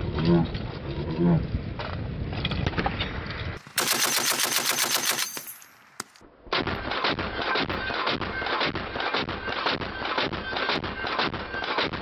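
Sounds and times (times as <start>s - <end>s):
heavy machine gun firing bursts: 3.6s - 5.4s.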